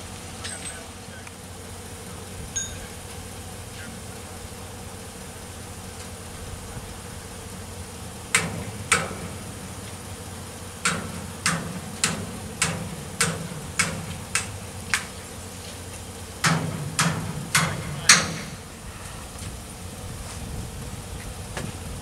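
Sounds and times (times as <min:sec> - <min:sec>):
low engine hum: 0:00.0 - 0:22.0
hammer striking steel: 0:02.6 - 0:03.0, 0:08.3 - 0:09.8, 0:10.8 - 0:15.2, 0:16.4 - 0:18.7.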